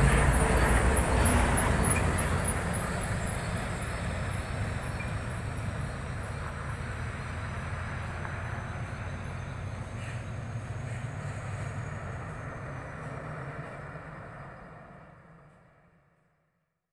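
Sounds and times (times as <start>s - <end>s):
truck diesel engine rumble: 0.0s - 15.9s.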